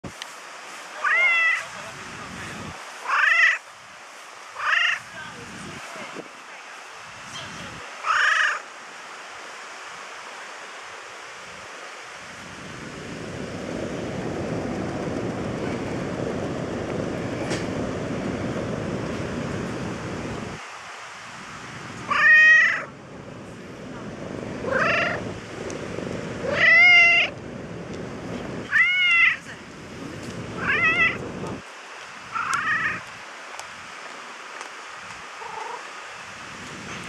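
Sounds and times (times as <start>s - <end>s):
cat meowing: 1.0s - 1.6s, 3.1s - 3.6s, 22.1s - 22.9s, 24.7s - 25.2s, 26.4s - 27.3s, 28.7s - 29.4s, 30.6s - 31.2s, 32.3s - 33.0s.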